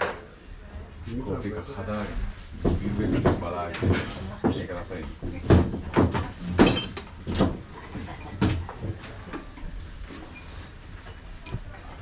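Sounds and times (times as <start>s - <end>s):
sharp knocks and thumps: 2.6s - 9.0s.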